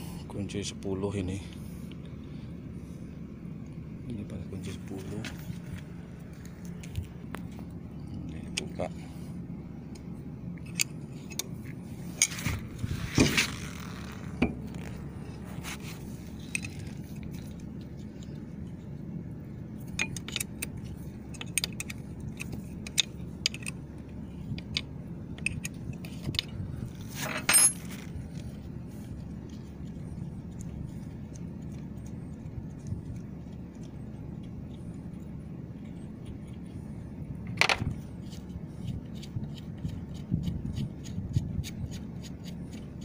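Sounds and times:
metal clinks: 27.3 - 28.1.

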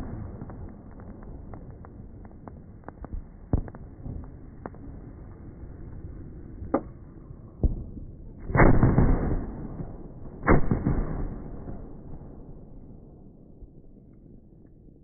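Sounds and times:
firework cracks: 0.0 - 5.3, 8.4 - 12.2
loud firework bangs echoing: 8.5 - 12.2.

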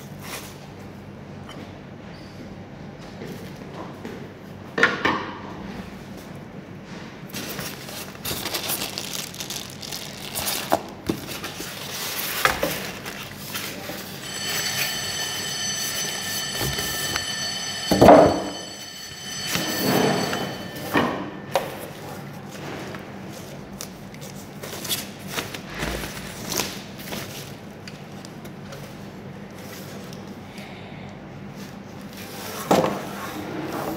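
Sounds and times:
plastic packaging rustling: 7.3 - 13.7.

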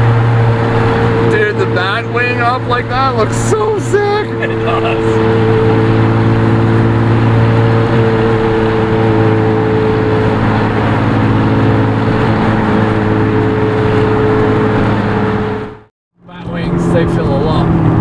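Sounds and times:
car engine droning from inside cabin: 0.0 - 18.0.

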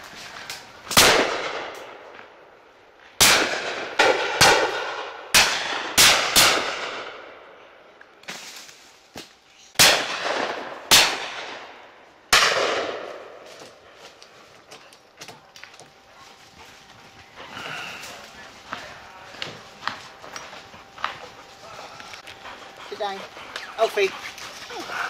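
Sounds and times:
distant shotgun shots: 0.9 - 2.0, 3.2 - 7.4, 9.8 - 13.4
shotgun shots with rolling echo: 0.9 - 2.1, 3.2 - 7.6, 9.8 - 13.4.

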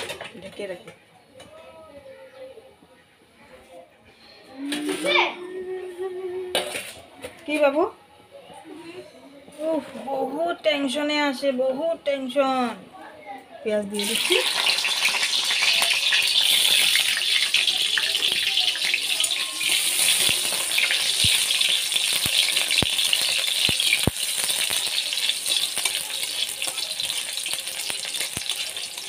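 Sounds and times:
onions sizzling in oil: 14.0 - 29.0.

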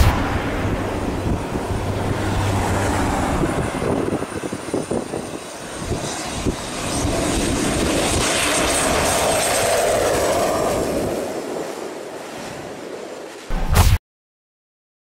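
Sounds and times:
low rumbles: 0.0 - 4.4
propeller plane engine drone: 0.0 - 13.6.

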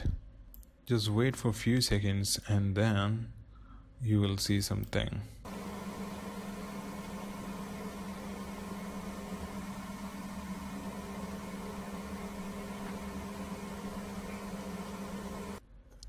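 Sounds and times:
low electrical hum with hiss: 4.8 - 16.0.

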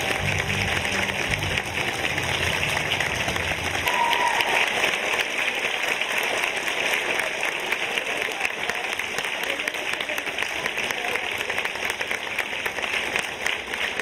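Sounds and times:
low music notes: 0.0 - 3.8
audience applauding: 0.0 - 14.0.

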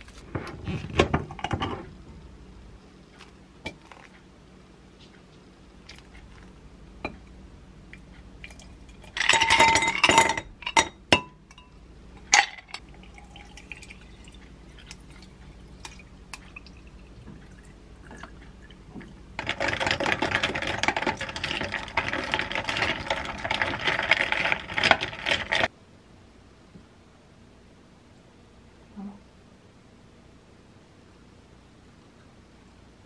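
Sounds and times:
ice cubes clinking into glass: 9.1 - 10.9.

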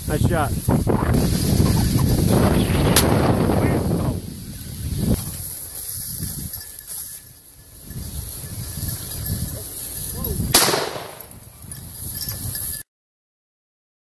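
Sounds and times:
wind buffeting microphone: 0.0 - 12.8
walking through dry grass: 0.4 - 10.5
shotgun shot: 10.5 - 11.3.

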